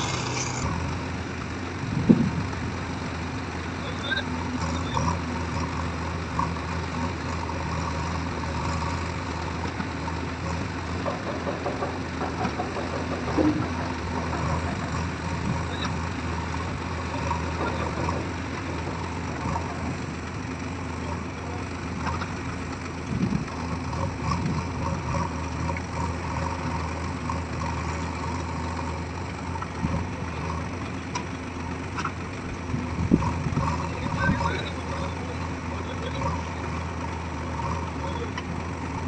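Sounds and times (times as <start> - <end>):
diesel engines running: 0.0 - 39.0
loud knocks: 11.0 - 15.1.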